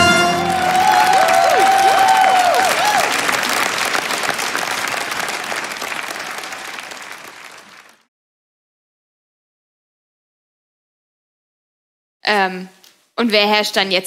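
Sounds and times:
voices cheering: 0.0 - 7.9
audience applauding: 0.0 - 8.1.

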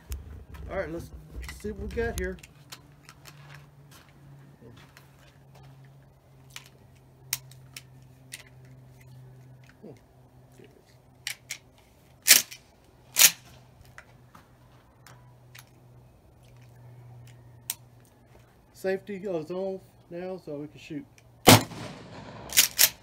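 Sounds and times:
shotgun handling clicks: 6.5 - 10.1, 11.2 - 14.1, 15.1 - 18.1, 21.1 - 23.0
loud sharp gunshots: 21.5 - 23.0.

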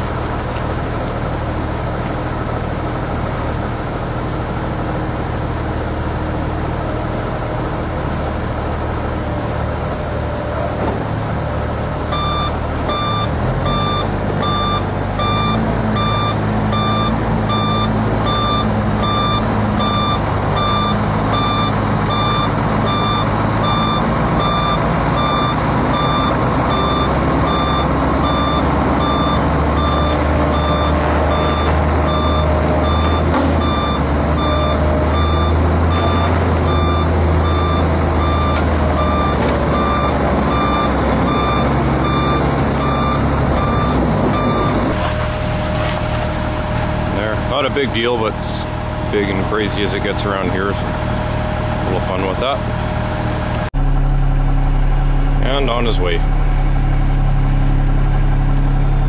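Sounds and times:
dump truck diesel engines: 0.0 - 59.0
reversing alarm beeping: 12.1 - 45.5.

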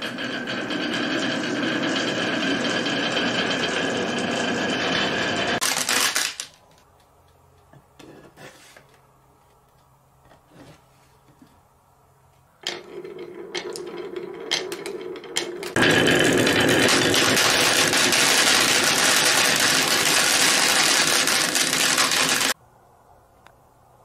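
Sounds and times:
marbles rolling down wooden channels: 0.0 - 6.5, 12.6 - 22.6.

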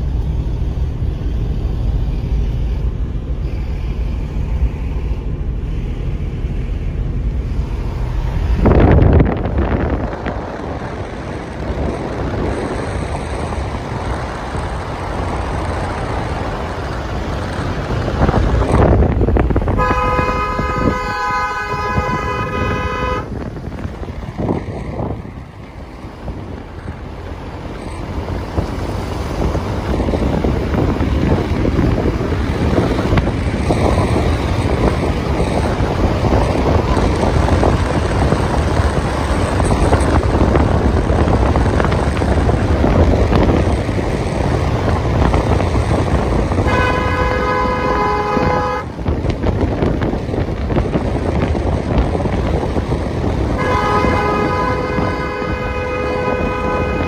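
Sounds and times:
car engine and tyres rumbling: 0.0 - 57.0
car horn: 19.7 - 23.5, 46.5 - 49.2, 53.5 - 57.0.

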